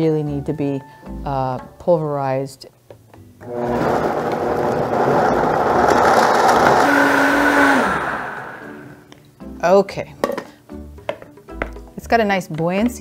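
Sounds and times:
blender running: 3.4s - 9.0s.

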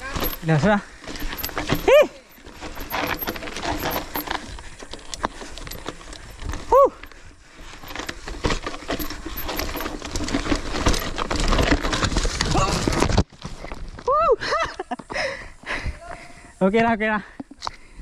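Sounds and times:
mountain bike rattling over rocks: 0.0s - 14.1s.

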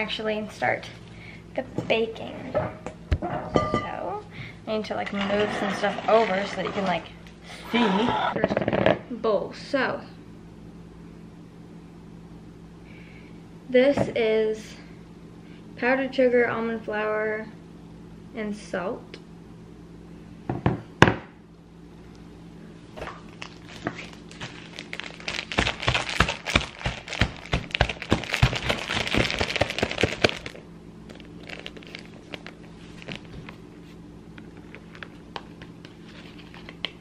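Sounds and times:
plastic bag crinkling: 23.2s - 33.6s.

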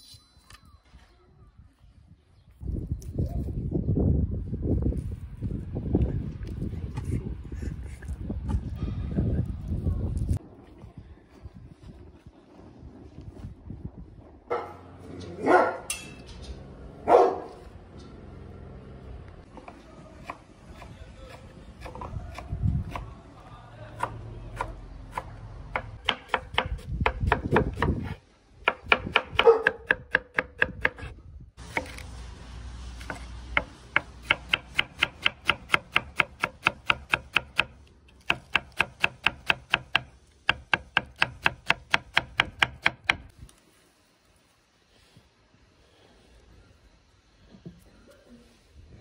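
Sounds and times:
knife chopping on wooden board: 24.0s - 31.1s.

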